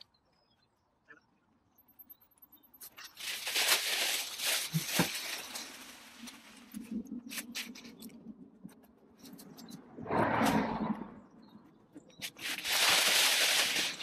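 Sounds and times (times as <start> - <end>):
leafy branches rustling: 3.0 - 8.0, 12.2 - 14.0.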